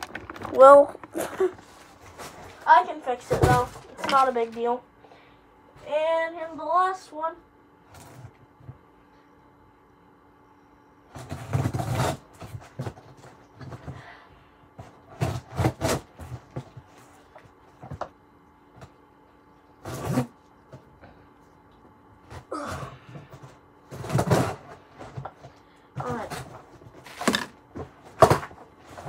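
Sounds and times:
package rustling and scraping: 0.0 - 2.7, 26.0 - 29.0.

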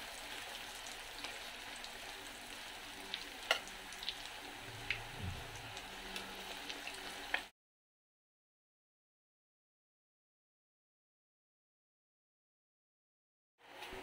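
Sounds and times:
chicken deep-frying in oil: 0.0 - 7.5, 13.6 - 14.0
metal tongs clicking on pan: 3.5 - 3.7.

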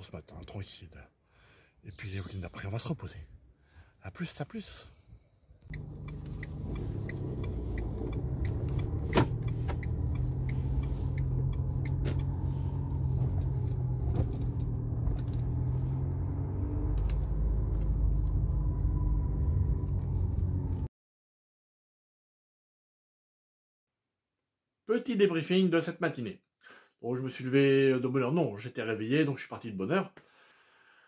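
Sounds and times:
car engine and road rumble: 5.6 - 20.9
light regular ticking: 5.7 - 12.4.

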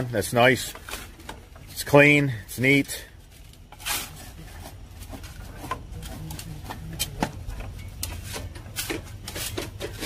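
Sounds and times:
spade working soil: 3.7 - 7.4, 8.0 - 10.0.

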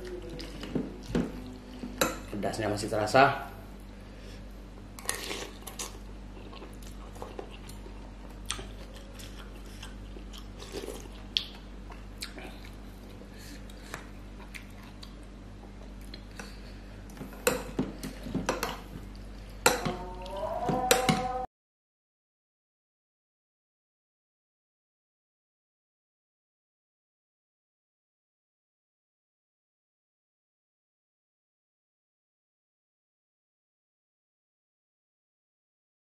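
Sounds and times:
steady low hum: 0.0 - 21.5
cutlery clinking on ceramic bowl: 19.6 - 20.0.

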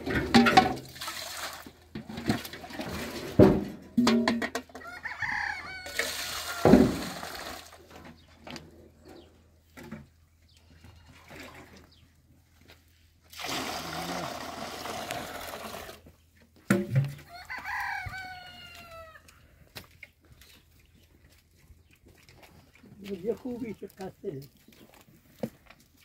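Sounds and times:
chicken calling: 4.8 - 6.7, 17.3 - 19.4
loud thump: 6.7 - 7.1.

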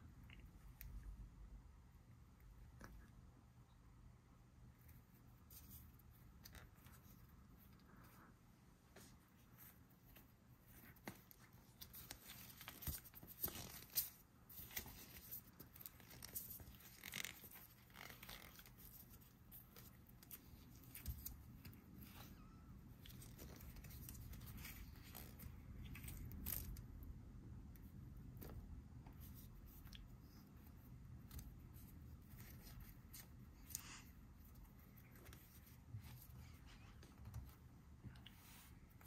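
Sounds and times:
rubber toy squishing and creaking: 10.9 - 27.1.

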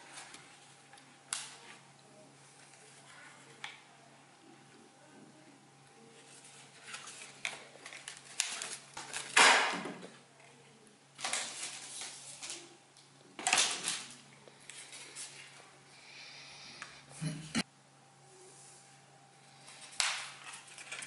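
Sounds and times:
cardboard being folded: 6.2 - 9.6.

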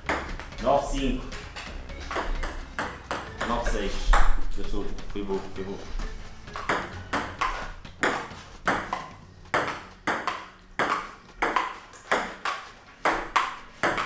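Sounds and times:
ping-pong ball clicking: 2.1 - 4.3, 6.6 - 14.0.

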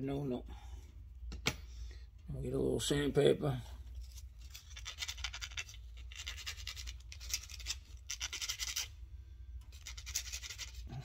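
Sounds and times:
sandpaper rubbing on metal: 4.6 - 8.9, 9.7 - 10.9.

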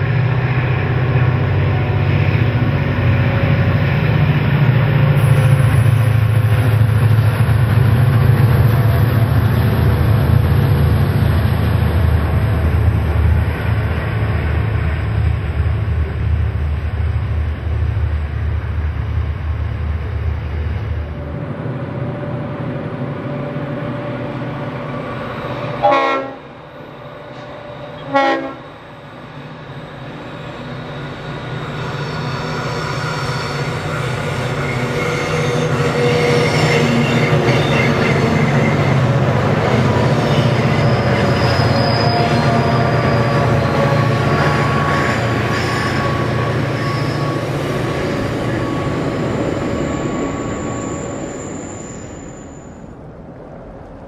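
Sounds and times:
diesel locomotive under load: 0.0 - 54.0
freight train rolling past: 0.0 - 54.0
train horn blasts: 25.6 - 28.9.

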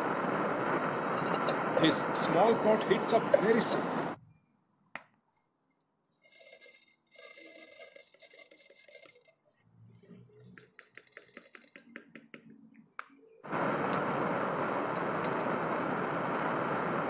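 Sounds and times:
seeds rattling into metal pot: 6.1 - 9.5, 10.6 - 12.0.

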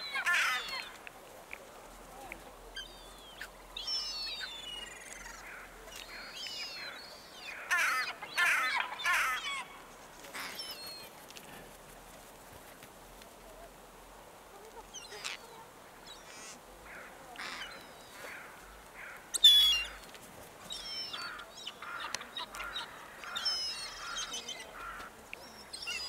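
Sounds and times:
wild birds calling and chirping: 2.7 - 11.2, 14.7 - 26.0.

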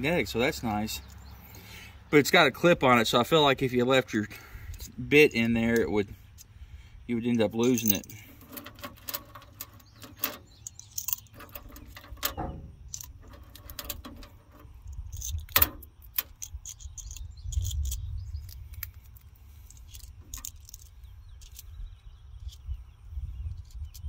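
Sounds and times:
steady low rumble: 0.0 - 24.0
metal screwdriver bits clinking: 7.4 - 21.8.

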